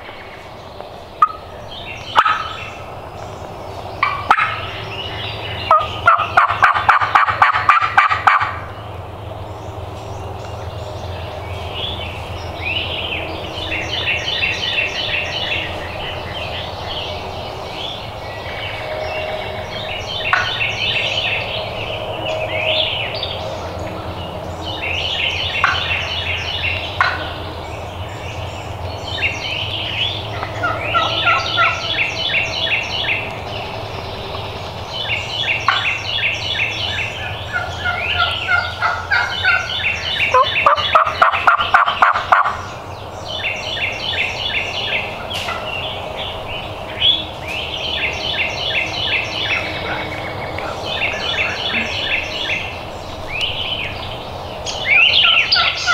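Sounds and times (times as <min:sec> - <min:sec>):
songbirds singing: 0:00.0 - 0:55.9
turkey gobbling: 0:01.2 - 0:01.4, 0:02.2 - 0:02.6, 0:04.0 - 0:04.6, 0:05.7 - 0:08.7, 0:20.3 - 0:20.6, 0:25.6 - 0:25.9, 0:27.0 - 0:27.4, 0:30.3 - 0:31.9, 0:35.7 - 0:36.0, 0:37.5 - 0:39.7, 0:40.3 - 0:42.7, 0:49.4 - 0:52.2, 0:55.2 - 0:55.9.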